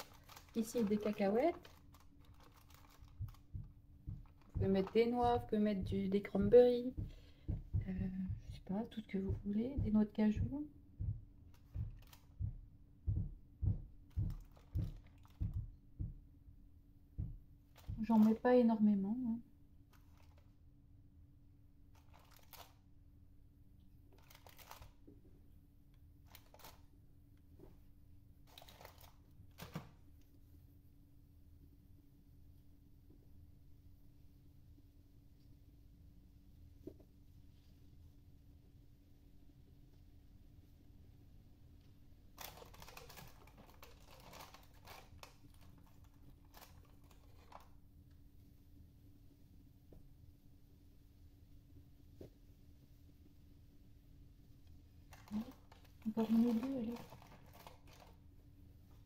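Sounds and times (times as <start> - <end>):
peanuts clicking and rattling: 0.0 - 5.2, 21.9 - 22.8, 24.1 - 25.0, 26.3 - 26.9, 28.4 - 29.8, 42.3 - 47.8, 55.1 - 58.2
plastic tub crinkling: 0.0 - 7.0, 14.1 - 15.7, 22.0 - 22.8, 24.1 - 25.1, 28.4 - 29.9, 42.4 - 47.8, 55.1 - 58.2
low hum: 0.0 - 19.9.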